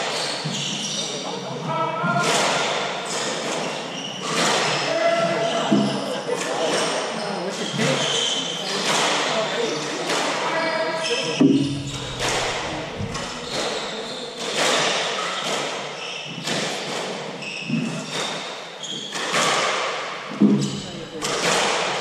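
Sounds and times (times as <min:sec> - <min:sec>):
short high squeaks: 0:10.8 - 0:14.4
squash ball knocks echoing: 0:11.4 - 0:22.0.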